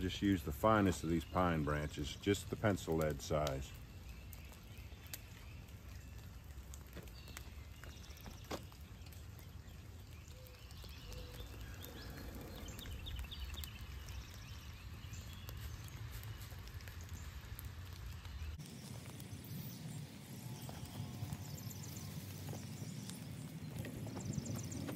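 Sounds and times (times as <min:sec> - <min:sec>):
faint chirps: 0:18.2 - 0:24.9.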